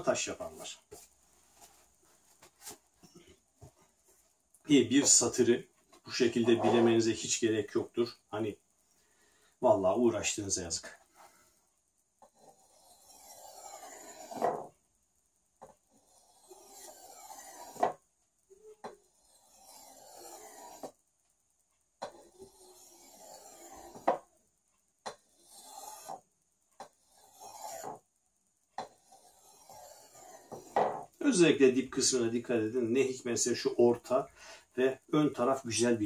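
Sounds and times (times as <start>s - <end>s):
blade scraping on sharpening stone: 12.3s - 14.7s, 16.0s - 18.0s, 18.8s - 20.9s, 22.0s - 24.2s, 25.3s - 26.2s, 27.0s - 28.0s, 28.8s - 31.0s.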